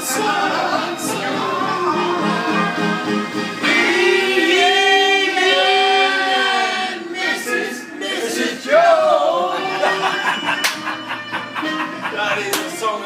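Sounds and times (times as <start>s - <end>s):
man singing long sliding notes: 0.0s - 6.6s.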